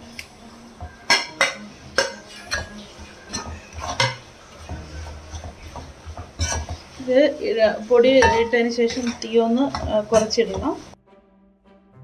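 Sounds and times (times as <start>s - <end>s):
spoon clinking against metal pot: 0.9s - 6.9s, 8.1s - 10.7s.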